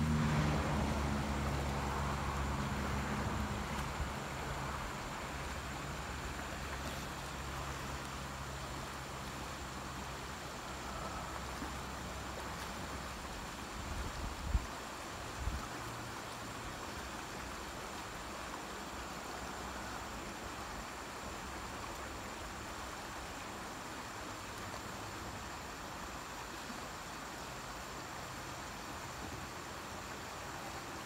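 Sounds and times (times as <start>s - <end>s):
low engine-like hum: 0.0s - 14.1s
creek flowing over stones: 0.0s - 31.0s.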